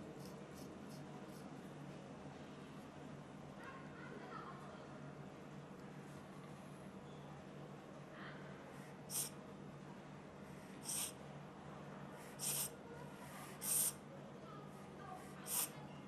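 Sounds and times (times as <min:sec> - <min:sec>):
e-cigarette puff hisses: 0:09.1 - 0:09.4, 0:10.8 - 0:11.2, 0:12.4 - 0:12.7, 0:13.6 - 0:14.0, 0:15.5 - 0:15.7.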